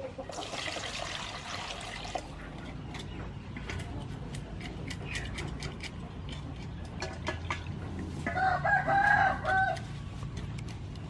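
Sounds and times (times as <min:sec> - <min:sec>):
knife scraping fish scales: 0:02.5 - 0:07.3
rooster crowing: 0:08.3 - 0:09.8.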